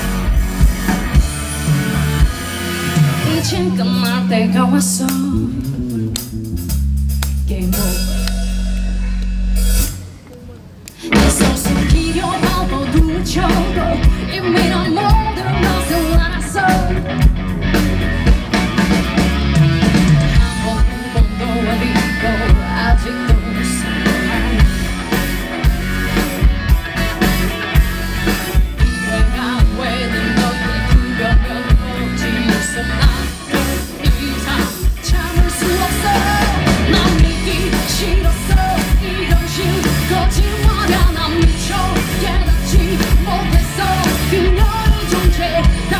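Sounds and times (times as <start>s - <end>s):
steady drum beat: 0.0s - 10.2s, 11.1s - 45.9s
live rock band playing: 0.0s - 45.9s
woman singing lead: 3.0s - 6.2s, 10.9s - 17.3s, 19.8s - 25.2s, 28.2s - 45.9s.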